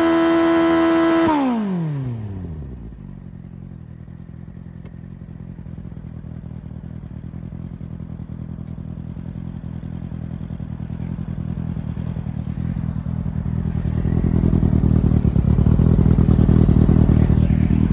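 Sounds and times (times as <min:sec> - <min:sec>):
motorcycle engine idling: 0:00.0 - 0:17.9.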